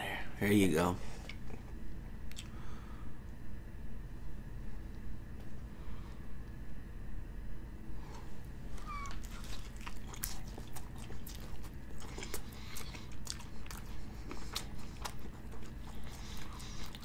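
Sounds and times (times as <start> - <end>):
person chewing: 2.3 - 2.6, 8.8 - 17.0.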